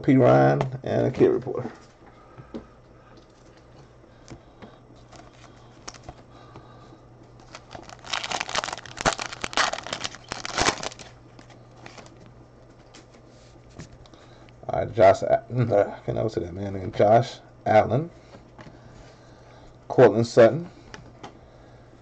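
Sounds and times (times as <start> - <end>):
foil wrapper tearing and crinkling: 7.4 - 11.2, 11.8 - 12.1.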